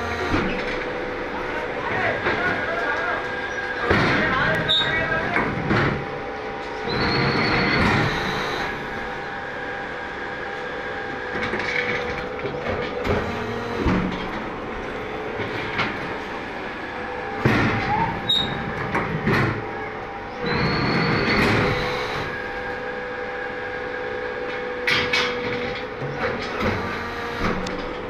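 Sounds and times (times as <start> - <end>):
machinery humming: 0.0 - 28.0
loud machine clanks: 1.8 - 8.9, 20.4 - 22.4
high squeal: 4.6 - 5.0, 6.8 - 8.8, 17.8 - 18.6, 20.4 - 22.4.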